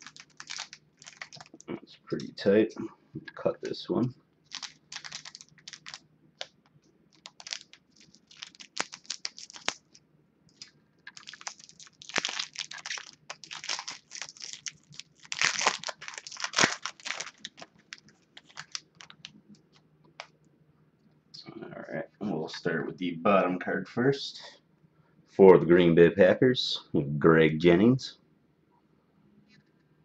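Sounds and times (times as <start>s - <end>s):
foil wrapper crinkling: 0.0s - 2.3s, 4.5s - 6.5s, 7.1s - 19.4s.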